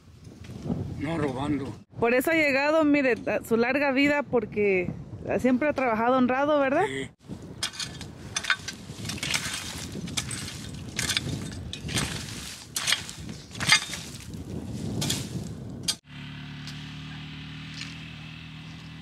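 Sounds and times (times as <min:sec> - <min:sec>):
hoe chopping stony soil: 0:07.5 - 0:16.0.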